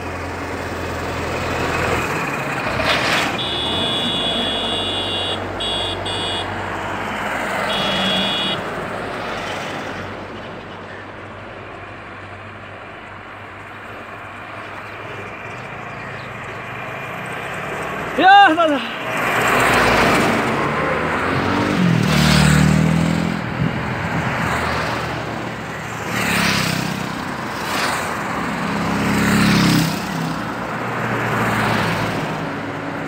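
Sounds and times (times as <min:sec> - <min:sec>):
vehicle road and wind noise: 0:00.0 - 0:33.0
high-pitched horn beeps: 0:03.4 - 0:06.5, 0:07.7 - 0:08.7.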